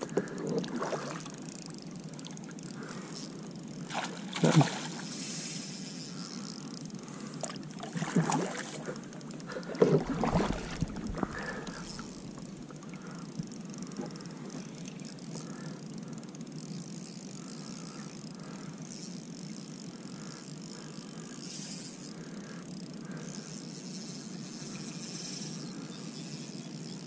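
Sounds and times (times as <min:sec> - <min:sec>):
water rushing along kayak hull: 0:09.6 - 0:11.8.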